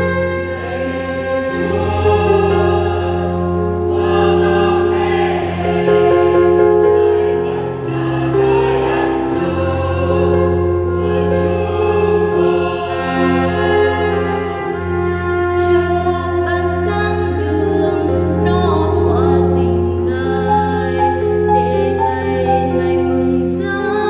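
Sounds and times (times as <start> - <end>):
choir singing held notes: 0.0 - 19.2
low accompaniment: 0.0 - 23.6.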